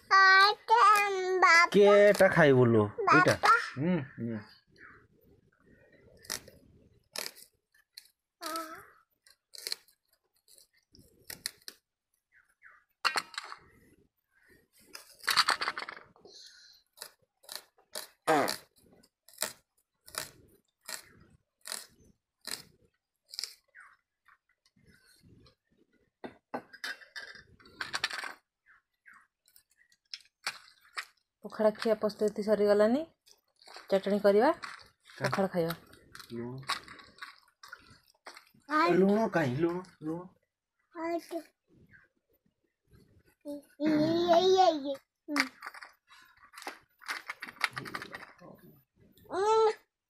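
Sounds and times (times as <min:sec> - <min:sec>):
onion skin crackling and tearing: 0:06.2 - 0:11.8, 0:19.2 - 0:22.7.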